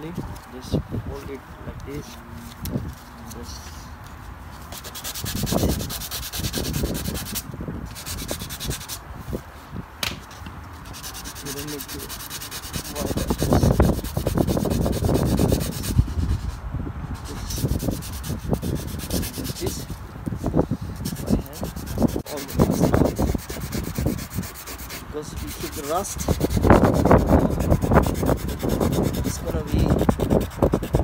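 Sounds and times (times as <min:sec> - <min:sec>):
sandpaper rubbing on car panel: 0:04.7 - 0:09.0, 0:10.8 - 0:31.0.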